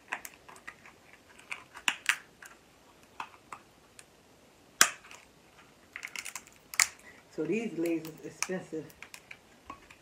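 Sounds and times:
crab shell cracking: 0.0 - 4.1, 4.8 - 5.3, 5.9 - 7.1.

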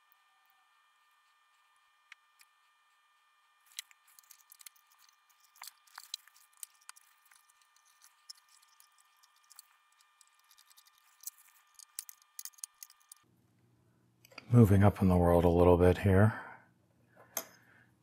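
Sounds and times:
hands clicking and tapping electronics: 3.6 - 13.2.

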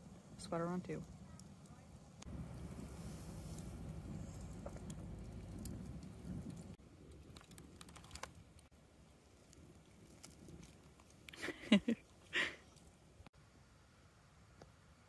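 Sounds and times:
wood fire crackling: 0.0 - 13.3
low rumble: 2.0 - 7.2.

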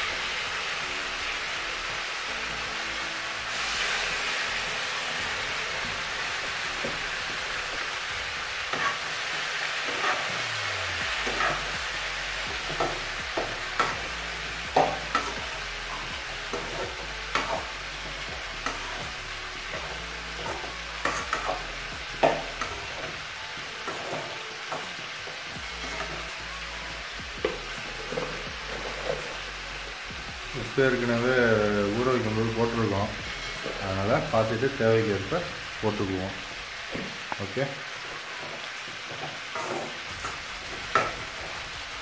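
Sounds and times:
vegetables sizzling in oil: 0.0 - 42.0
metal ladle scraping pan: 5.3 - 10.5, 11.2 - 11.7, 27.4 - 29.4, 38.3 - 41.6.

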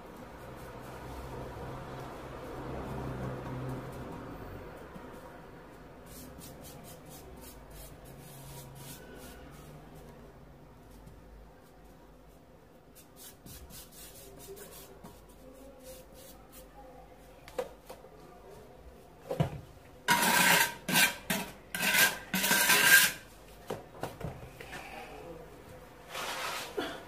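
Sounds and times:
rough rubbing on floor tiles: 6.0 - 10.2, 11.7 - 16.8, 20.1 - 23.3, 26.0 - 26.9.

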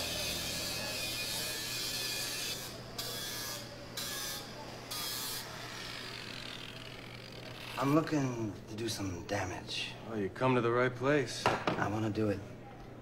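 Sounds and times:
power grinder grinding metal: 0.0 - 8.1.

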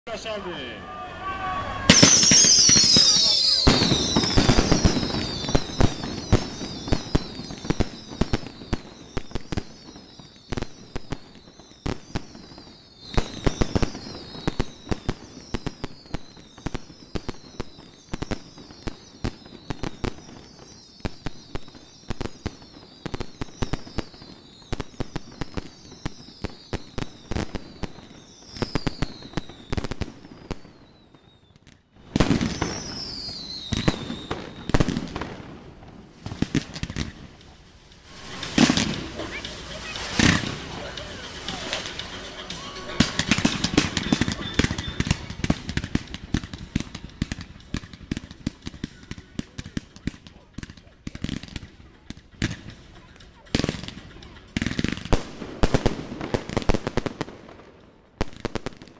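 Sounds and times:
fireworks whistles falling in pitch: 0.1 - 35.6, 36.2 - 51.6
fireworks bangs and crackling pops: 1.8 - 58.9.

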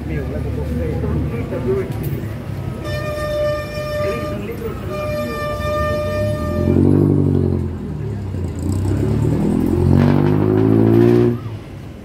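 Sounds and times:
horn tone: 2.8 - 7.3
vehicle engine revving: 5.4 - 11.7.

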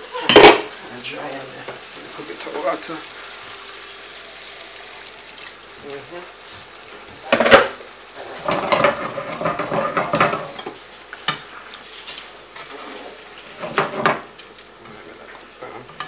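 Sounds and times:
food sizzling: 0.0 - 16.0
spatula scraping a frying pan: 8.2 - 14.3.

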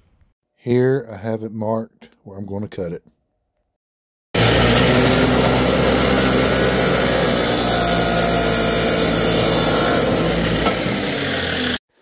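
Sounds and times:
abrasive chop saw cutting hose: 4.4 - 11.8.

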